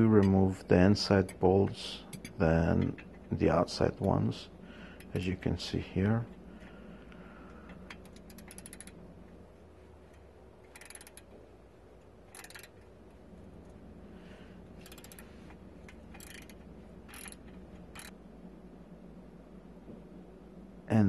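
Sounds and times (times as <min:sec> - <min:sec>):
ratchet wrench clicking: 0:07.8 - 0:09.0, 0:10.1 - 0:11.4, 0:12.2 - 0:12.9, 0:14.8 - 0:18.1.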